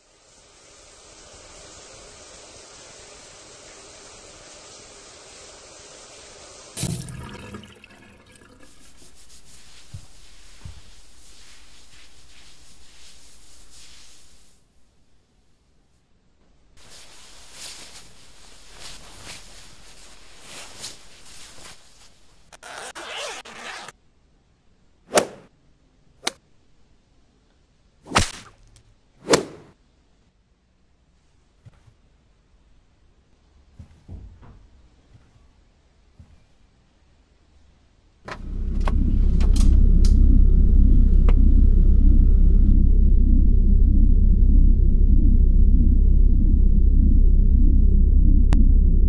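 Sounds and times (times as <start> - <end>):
fabric rustling: 8.4 - 14.9, 16.8 - 23.9
zipper pulled up: 22.5 - 24.0
low rumbling drone: 38.3 - 49.0.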